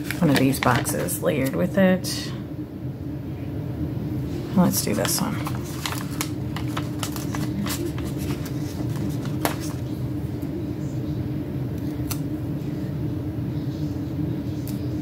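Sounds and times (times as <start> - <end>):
paper rustling: 0.0 - 1.2, 4.9 - 10.0
steady low hum: 0.0 - 15.0.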